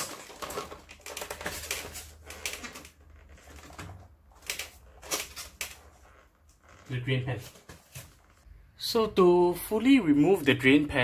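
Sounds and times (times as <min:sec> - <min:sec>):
plastic parts clicking and knocking: 0:00.0 - 0:06.0.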